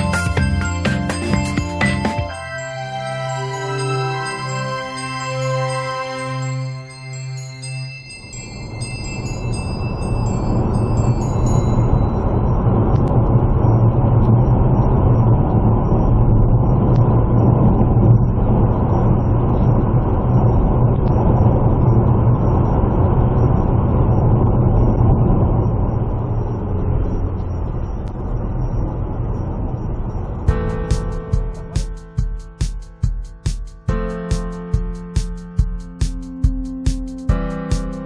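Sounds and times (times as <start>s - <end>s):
vehicle engine and tyre noise: 10.1s - 31.8s.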